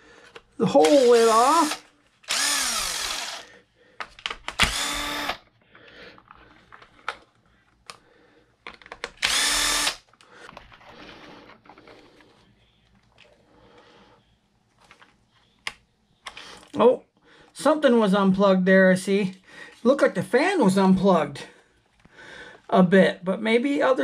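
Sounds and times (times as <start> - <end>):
cordless drill backing out screws: 4.5 - 5.4.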